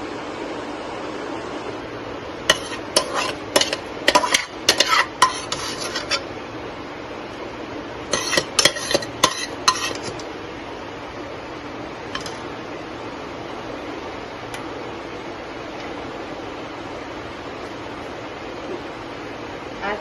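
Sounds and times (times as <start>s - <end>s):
steel spoon scraping a pot: 2.5s - 6.3s, 8.1s - 10.2s.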